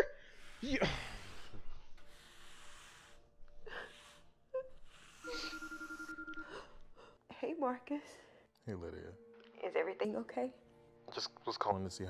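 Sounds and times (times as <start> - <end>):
phone ringing: 5.3 - 6.7.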